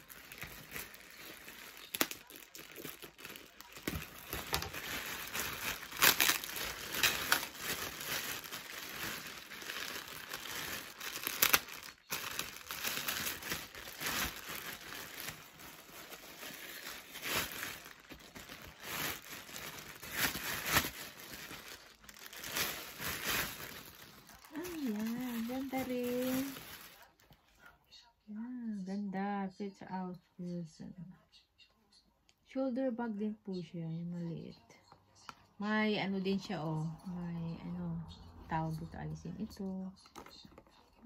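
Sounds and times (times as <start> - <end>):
plastic packaging crinkling: 0.0 - 27.3, 40.0 - 41.0.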